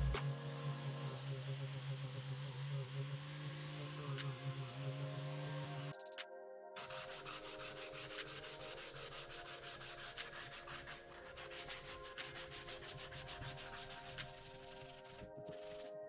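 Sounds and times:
sandpaper rubbing wood: 0:06.8 - 0:15.9.

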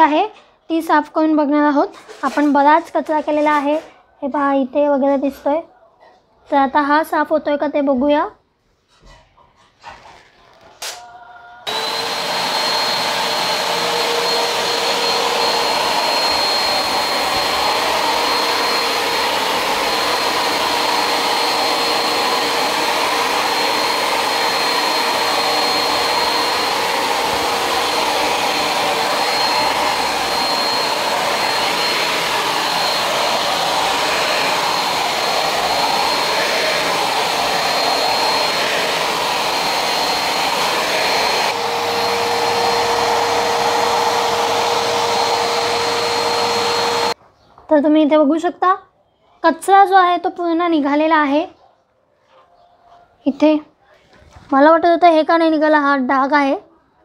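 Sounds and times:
vacuum cleaner whining: 0:11.6 - 0:47.2.

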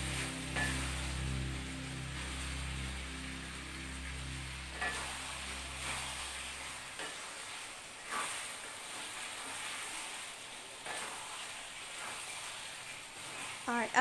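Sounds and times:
liver sizzling in a pan: 0:00.0 - 0:14.0
wooden spatula scraping a pan: 0:04.1 - 0:13.7.

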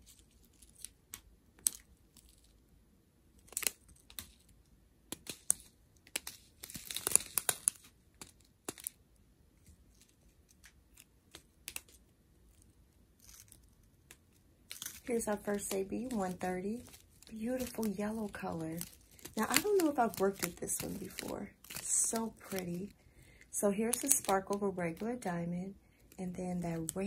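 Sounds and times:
plastic bags crinkling: 0:14.7 - 0:25.3.

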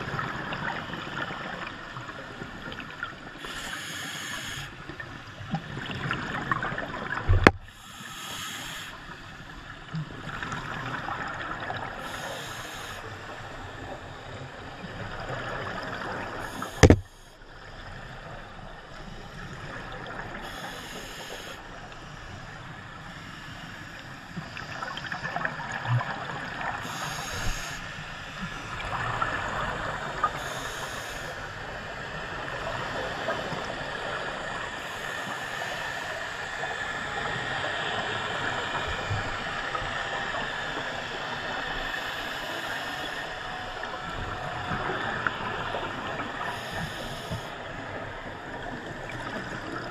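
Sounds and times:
regulator hissing: 0:03.4 - 0:04.7, 0:07.7 - 0:09.0, 0:12.0 - 0:13.0, 0:26.8 - 0:27.8
underwater breathing bubbles: 0:10.3 - 0:13.1, 0:15.4 - 0:17.4, 0:19.2 - 0:21.6, 0:23.2 - 0:31.6, 0:44.6 - 0:47.7
sharp knock: 0:16.8 - 0:17.0.

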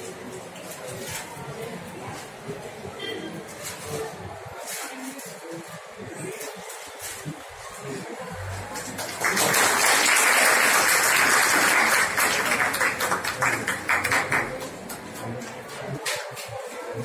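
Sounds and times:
small group applauding: 0:08.5 - 0:15.7.

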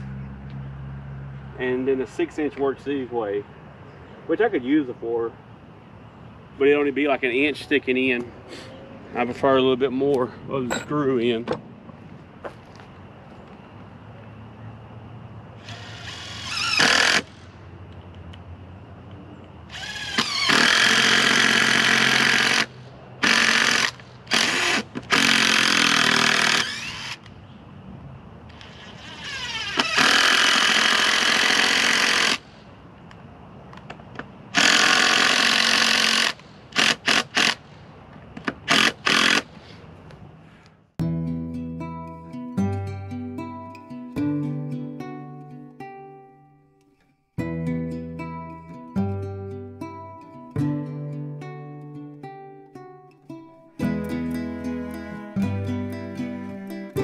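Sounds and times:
impact driver driving screws: 0:15.7 - 0:17.3, 0:19.8 - 0:27.2, 0:28.6 - 0:32.4, 0:34.6 - 0:37.6, 0:38.7 - 0:39.5.

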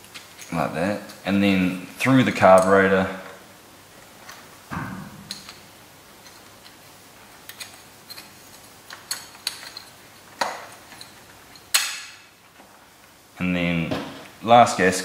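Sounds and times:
metal knock: 0:04.7 - 0:05.3.

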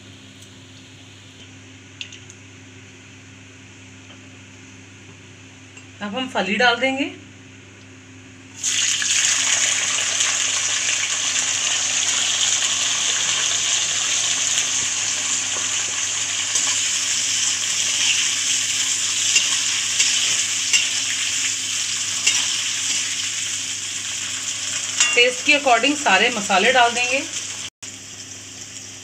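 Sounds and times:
beans sizzling in hot oil: 0:08.6 - 0:29.0
metal ladle clinking: 0:25.0 - 0:25.2.

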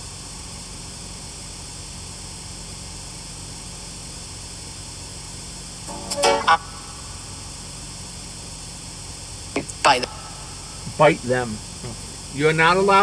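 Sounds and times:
white noise static hiss: 0:05.7 - 0:13.0.

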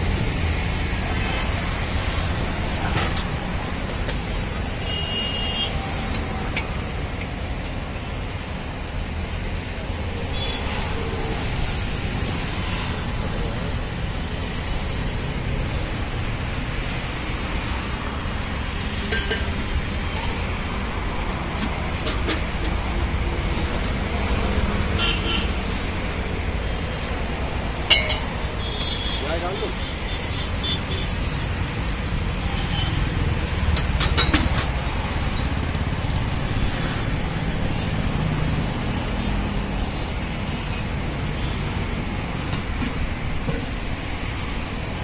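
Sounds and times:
low traffic rumble: 0:00.0 - 0:45.0
ladle clinking on steel pots: 0:19.0 - 0:20.5, 0:27.9 - 0:28.4.

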